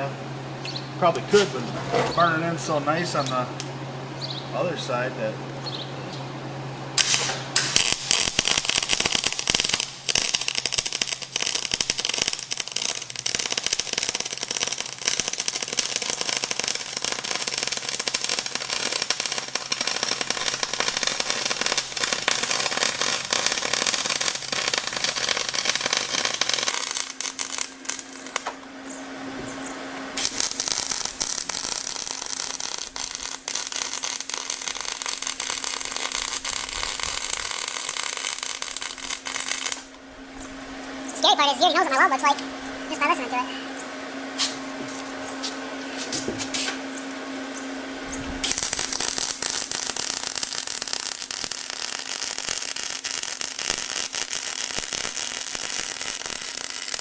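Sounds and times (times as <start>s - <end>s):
welding arc crackling and sizzling: 7.0s - 28.6s, 30.2s - 40.1s, 44.4s - 46.8s, 48.3s - 57.0s.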